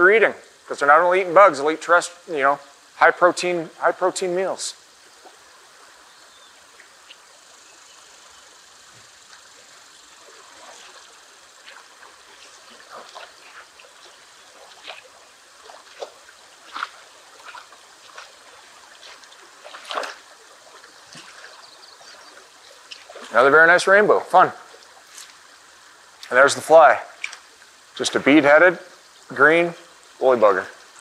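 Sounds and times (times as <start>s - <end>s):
fast river current: 0.0s - 31.0s
fish splashing at surface: 10.2s - 21.6s.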